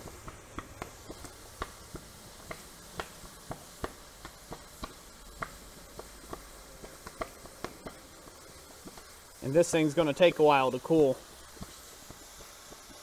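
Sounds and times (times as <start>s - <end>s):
low hiss: 0.0s - 13.0s
water popping around hot metal: 0.0s - 13.0s.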